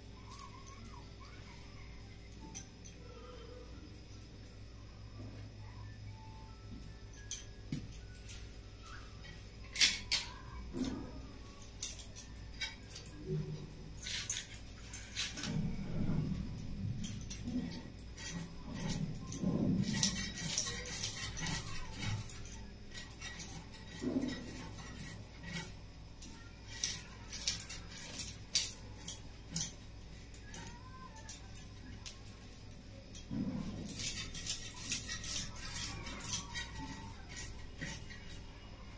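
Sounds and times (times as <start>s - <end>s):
fish scales being scraped: 11.6s - 32.2s, 33.0s - 38.9s.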